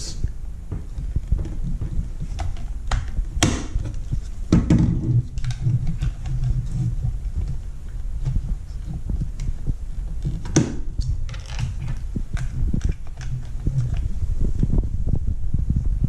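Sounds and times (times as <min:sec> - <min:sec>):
sharp plastic clicks and knocks: 0:00.7 - 0:06.8
plastic parts rubbing: 0:00.7 - 0:14.8.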